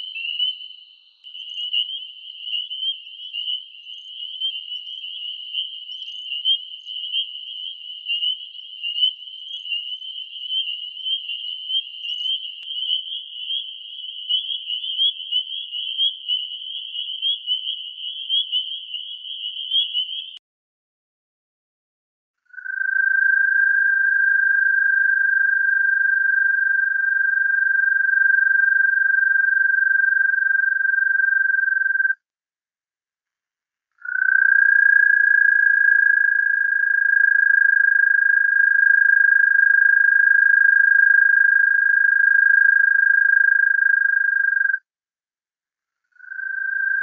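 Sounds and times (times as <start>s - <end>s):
toad trilling: 22.5s - 32.2s, 34.0s - 44.8s, 46.2s - 47.0s.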